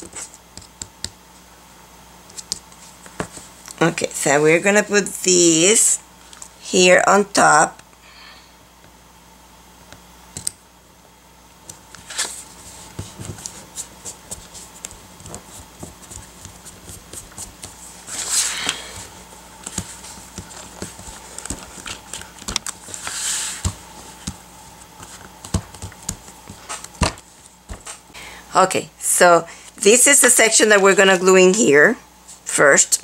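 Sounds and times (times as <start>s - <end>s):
paper sliding swishes: 17.2s - 19.0s, 22.8s - 24.1s
paper taps and crinkles: 19.6s - 24.4s.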